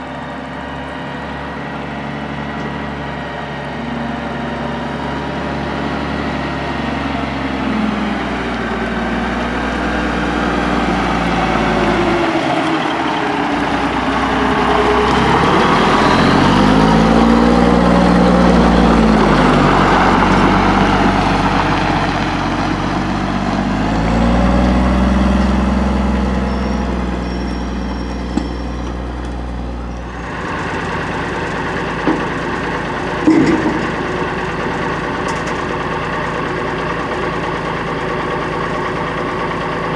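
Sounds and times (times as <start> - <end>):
garbage truck driving past: 0.0 - 39.9
truck idling: 0.0 - 39.9.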